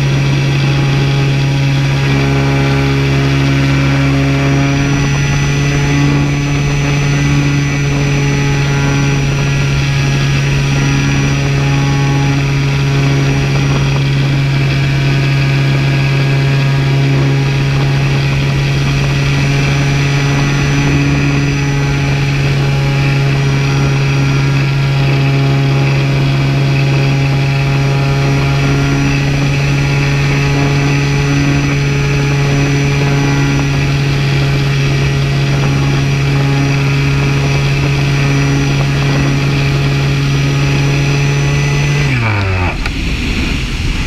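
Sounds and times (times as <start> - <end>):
propeller aircraft engine drone: 0.0 - 44.0.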